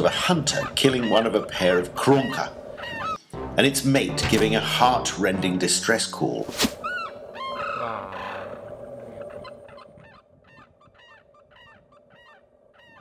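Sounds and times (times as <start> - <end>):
crane honking calls: 0.0 - 3.3, 6.8 - 13.0.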